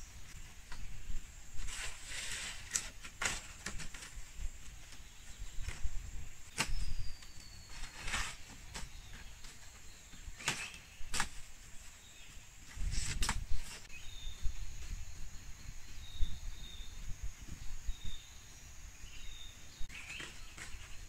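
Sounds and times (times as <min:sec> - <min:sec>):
bird chirps: 0:04.8 - 0:21.0.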